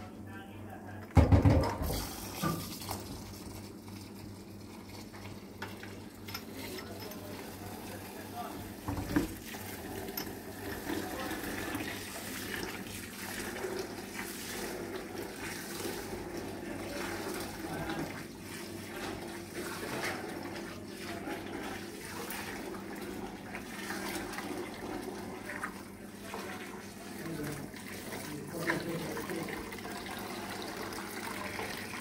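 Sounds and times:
running water: 1.8s - 32.0s.

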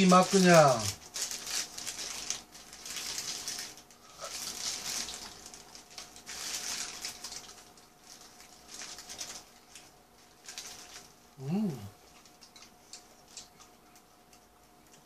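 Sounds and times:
paper wrapper crinkling: 0.0s - 11.2s
faint steady hum: 0.0s - 15.0s.

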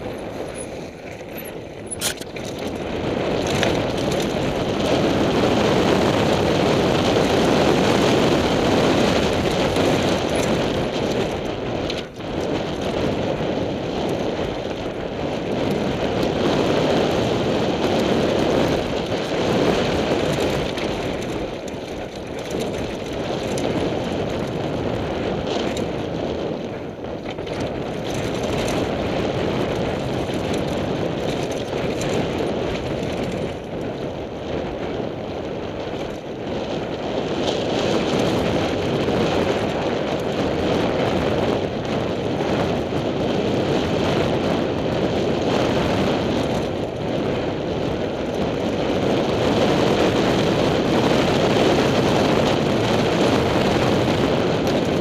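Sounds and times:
tyres crunching over loose rock: 0.0s - 4.8s
bike rattling: 0.0s - 55.0s
wind buffeting microphone: 0.0s - 55.0s.

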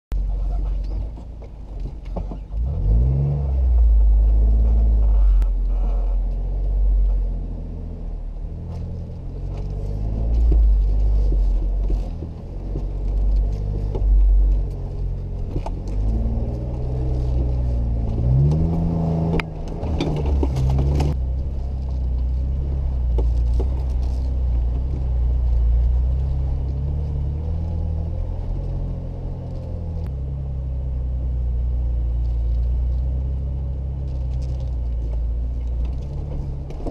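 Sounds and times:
engine running at low speed: 0.1s - 36.9s
vehicle clicks and knocks: 0.5s - 2.7s, 8.7s - 22.4s, 23.0s - 27.1s, 33.9s - 36.9s.

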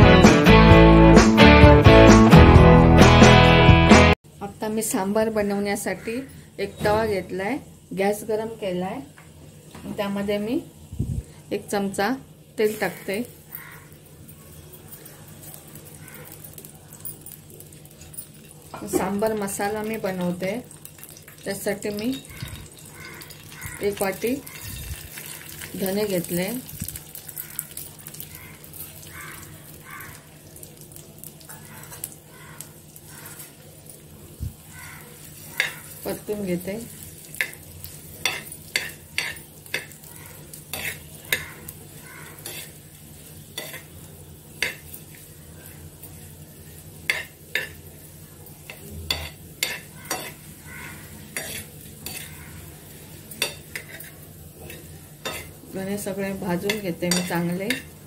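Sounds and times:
seeds crackling on a griddle: 7.9s - 58.0s
spoon scraping seeds on iron pan: 35.2s - 44.0s, 48.7s - 52.7s, 53.3s - 55.6s, 56.6s - 57.9s.

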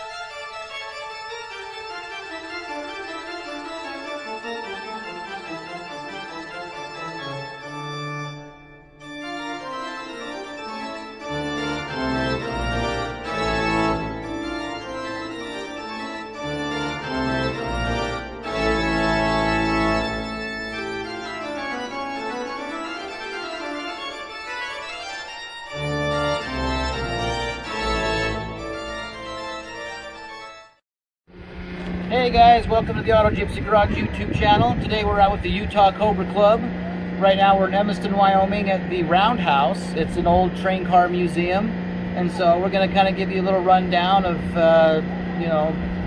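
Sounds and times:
organ-like keyboard music: 0.0s - 30.8s, 31.4s - 46.0s
bass line: 11.2s - 21.9s, 25.8s - 29.7s, 31.3s - 46.0s.

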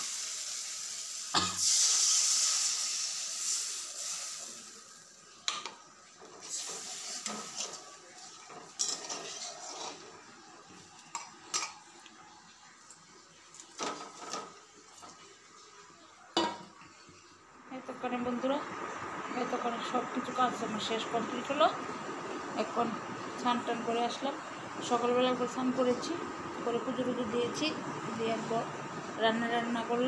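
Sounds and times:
loud sizzle in wok: 0.0s - 11.8s.

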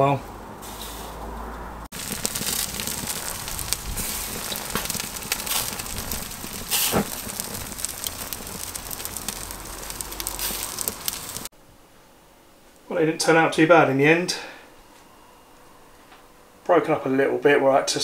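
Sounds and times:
fish sizzling on a grill: 1.9s - 11.5s.

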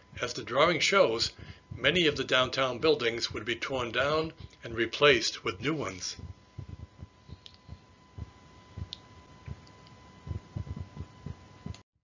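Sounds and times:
soft low clicks and thumps: 6.2s - 11.8s.

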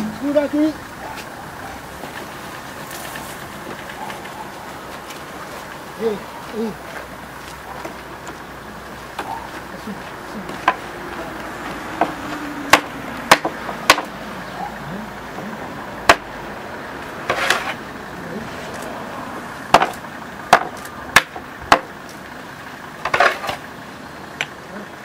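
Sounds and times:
hammer striking wooden wheel hub: 10.5s - 14.2s, 16.0s - 16.3s, 19.7s - 22.0s, 23.0s - 23.6s.

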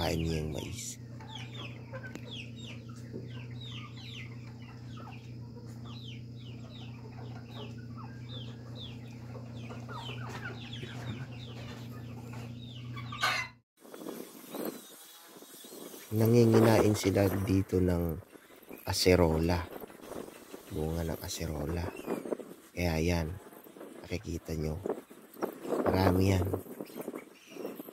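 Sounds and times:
steady low hum: 0.0s - 13.1s
chickens clucking: 0.0s - 13.6s, 16.2s - 27.9s.

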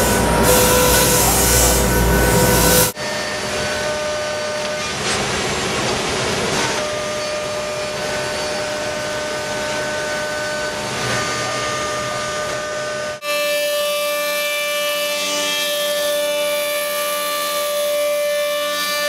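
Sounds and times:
router cutting hiss: 0.0s - 3.0s
high whining tones: 0.0s - 5.0s.

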